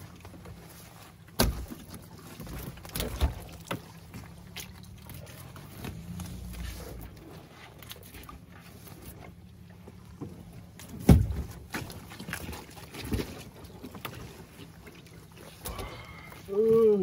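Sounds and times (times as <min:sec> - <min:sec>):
knocks and rustling of net: 0:00.0 - 0:09.3, 0:10.2 - 0:14.8
fish thudding into boat: 0:01.3 - 0:04.3, 0:10.8 - 0:14.0.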